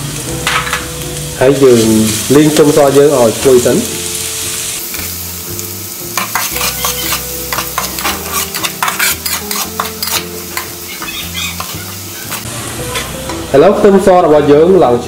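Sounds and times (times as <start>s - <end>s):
garlic sizzling in hot oil: 0.0s - 15.0s
metal spatula scraping wok: 6.1s - 13.4s.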